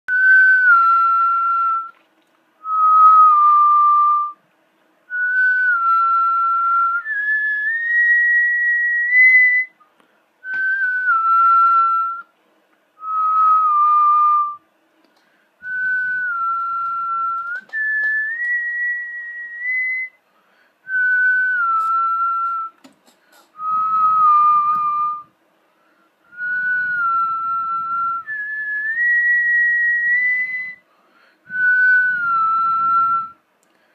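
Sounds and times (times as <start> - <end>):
person whistling a tune: 0.1 - 2.0, 2.6 - 4.4, 5.1 - 9.8, 10.4 - 12.3, 13.0 - 14.6, 15.6 - 20.2, 20.9 - 22.8, 23.6 - 25.3, 26.3 - 30.8, 31.5 - 33.4.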